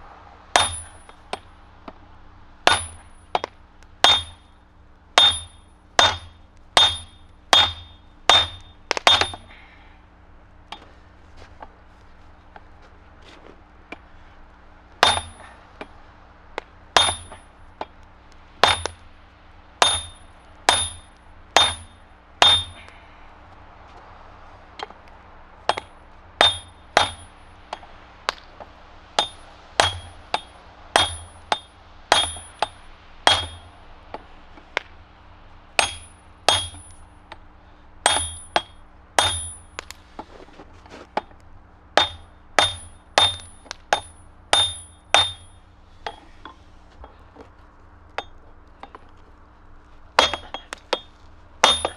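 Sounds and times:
hammer striking hot steel on anvil: 0.5s - 2.0s, 2.6s - 9.6s, 15.0s - 16.0s, 16.6s - 19.1s, 19.8s - 23.0s, 25.6s - 35.0s, 35.8s - 40.3s, 42.0s - 47.1s, 50.2s - 51.9s.

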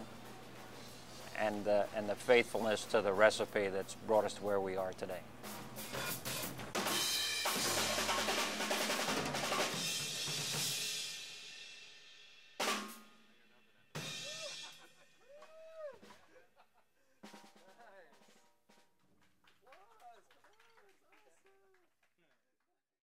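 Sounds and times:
drum kit played hard: 5.3s - 13.4s, 14.0s - 15.0s, 17.2s - 18.4s
cymbals crashing: 5.4s - 13.3s, 14.0s - 14.9s.

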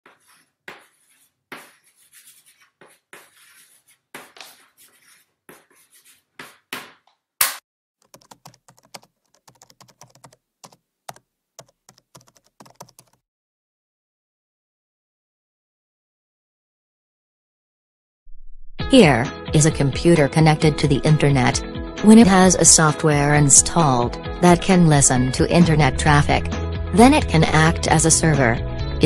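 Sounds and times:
marker pen scratching: 0.1s - 7.0s
keyboard typing: 8.0s - 13.2s.

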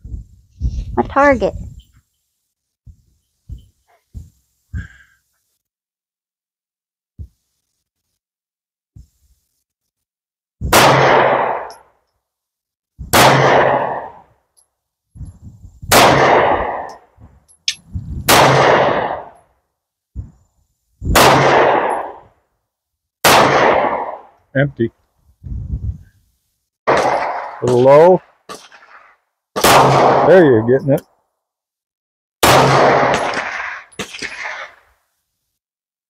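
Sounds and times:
pistol shots: 10.7s - 11.8s, 13.1s - 14.1s, 15.9s - 16.9s, 17.7s - 19.3s, 21.2s - 22.2s, 23.2s - 24.2s, 26.9s - 30.3s, 32.4s - 34.8s
gun handling clicks: 17.5s - 17.8s.

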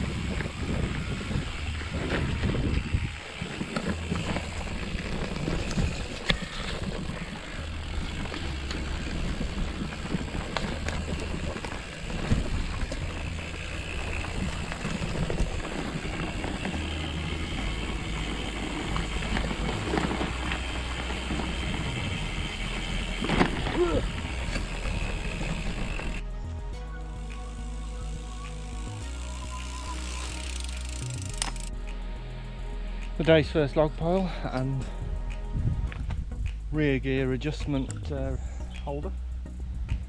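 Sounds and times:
bike tyres on dirt track: 0.0s - 26.4s, 27.4s - 31.8s
bike knocks and rattles: 2.0s - 26.2s.

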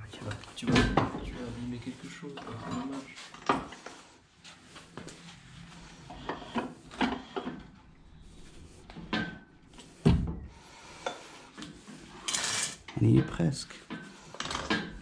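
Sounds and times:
metal and wood clunks: 0.6s - 1.4s, 9.0s - 10.6s.

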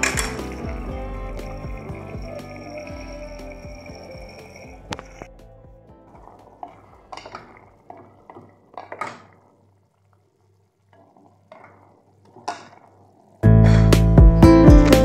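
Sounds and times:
spatula stirring food in pot: 10.9s - 13.4s.

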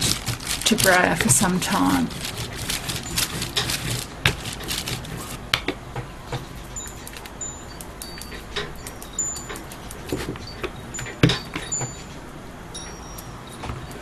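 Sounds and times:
rubbing over paper: 0.0s - 5.4s.

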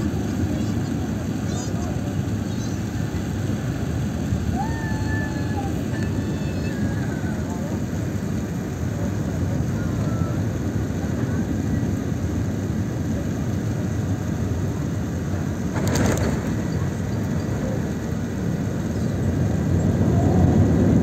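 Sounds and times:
jet engine cabin rumble: 0.0s - 21.0s.

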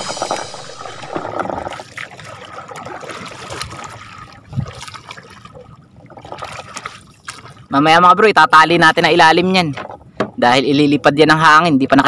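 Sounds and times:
paddle stroking through water: 0.0s - 7.7s
water splashing and trickling: 0.0s - 10.9s.

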